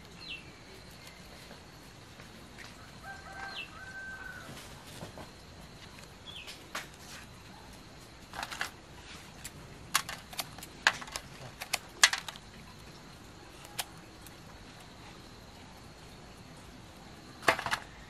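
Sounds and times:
leaves and string crackling: 0.0 - 18.0.

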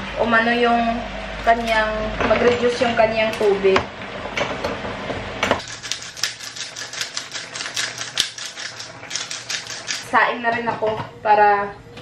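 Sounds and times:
spice grinder clicking: 5.6 - 10.1.

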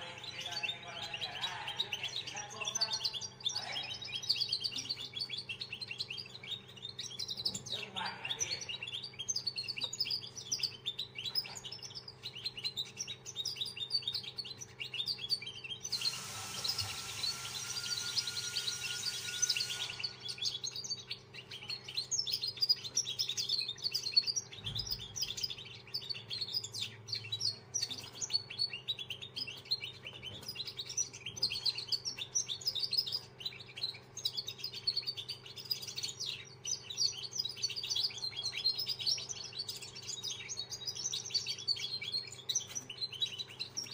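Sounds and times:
songbird chirping and twittering: 0.0 - 43.9
hiss with faint whistle: 15.9 - 20.2.

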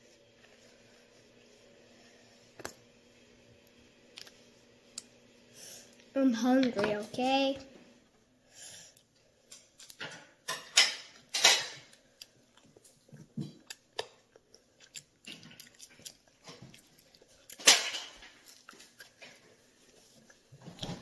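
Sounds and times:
child crunching candy: 13.6 - 19.2.

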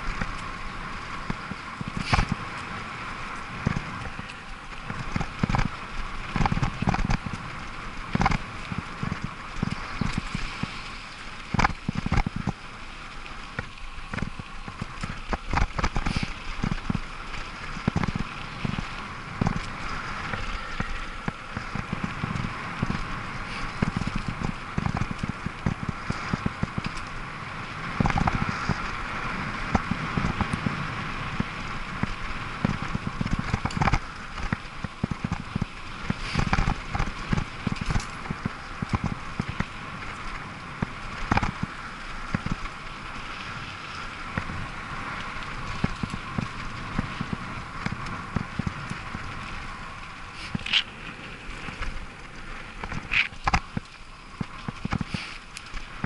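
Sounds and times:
bicycle tyre noise: 0.0 - 56.0
bike knocks and rattles: 3.5 - 7.5, 8.1 - 10.8, 11.5 - 12.6, 13.5 - 27.2, 28.0 - 28.9, 29.6 - 42.8, 52.8 - 55.3.

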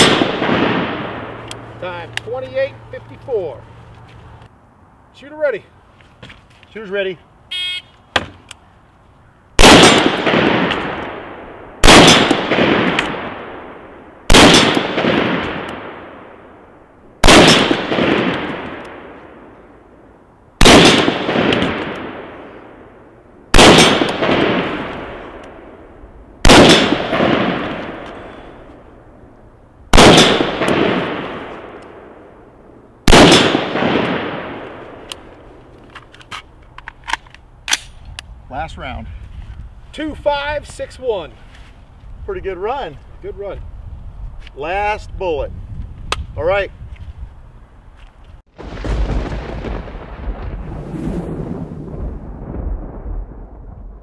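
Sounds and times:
rifle shots with echo: 0.0 - 1.4, 9.6 - 16.5, 17.2 - 19.5, 20.6 - 22.9, 23.5 - 25.8, 26.4 - 28.5, 29.9 - 32.4, 33.0 - 35.2.

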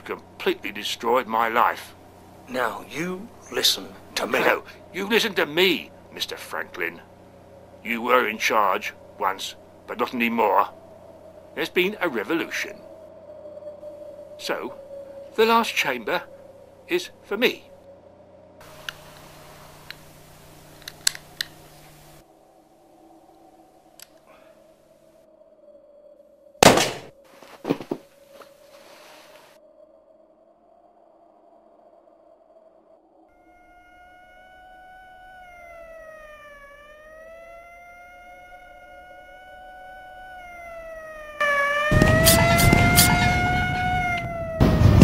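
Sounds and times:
siren wailing: 0.0 - 26.2, 32.0 - 45.0
faint steady hum: 0.0 - 45.0
revolver metallic clicks: 18.8 - 22.1
loud burst of noise: 41.2 - 45.0.

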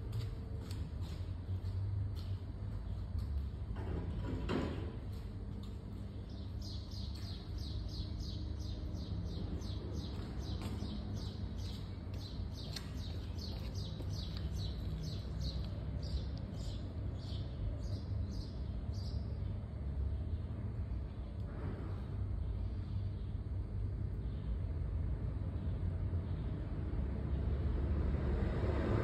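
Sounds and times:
steady low hum: 0.0 - 28.9
bird chirping: 6.0 - 19.6.

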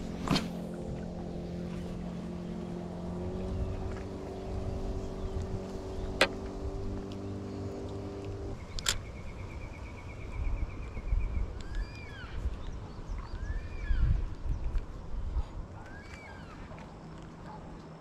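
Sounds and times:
engine drone: 0.0 - 12.4
wind rumble on microphone: 0.0 - 18.0.

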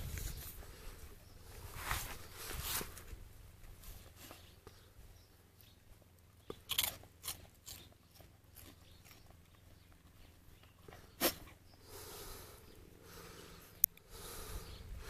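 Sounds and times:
dog crunching food: 6.4 - 10.1.

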